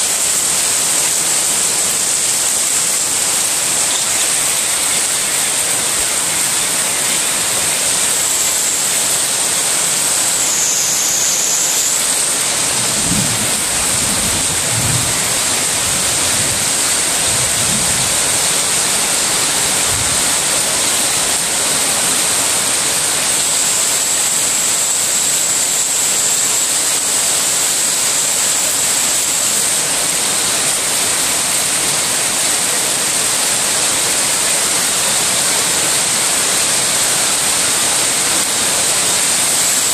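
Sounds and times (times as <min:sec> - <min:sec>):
heavy rain splashing on water: 0:00.0 - 0:39.9.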